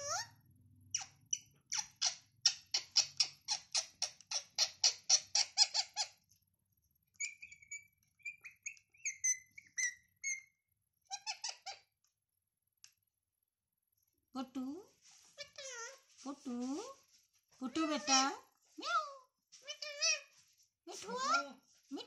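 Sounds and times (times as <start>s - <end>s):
parakeet chirps and squeaks: 0.0s - 6.3s, 7.1s - 11.9s, 15.3s - 16.2s, 17.7s - 18.5s, 19.6s - 21.5s
parakeet chattering calls: 0.9s - 6.2s, 7.2s - 10.5s.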